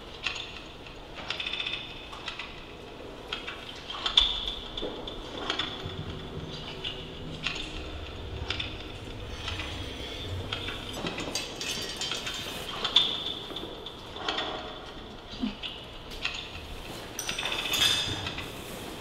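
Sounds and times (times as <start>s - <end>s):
metallic clinking and rattling: 4.8s - 14.5s, 17.2s - 18.3s.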